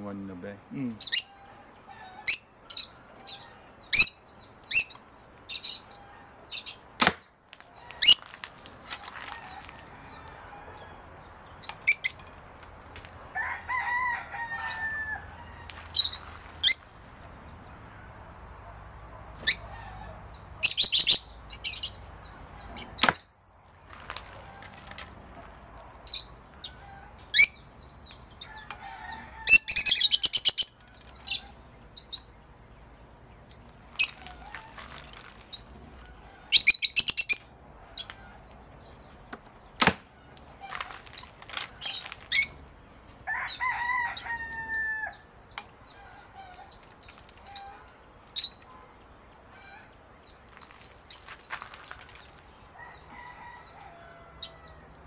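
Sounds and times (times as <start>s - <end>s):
birds chirping: 0.0s - 55.0s
bow shot crack: 7.0s - 7.3s, 39.8s - 40.1s.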